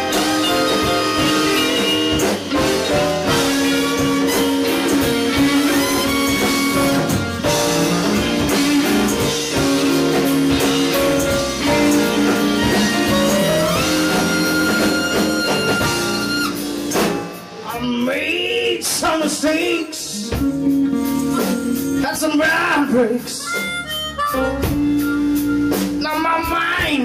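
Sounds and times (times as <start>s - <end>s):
electric guitar: 0.0s - 18.1s, 18.9s - 26.2s
blues band playing: 0.0s - 27.0s
drum kit: 0.0s - 27.0s.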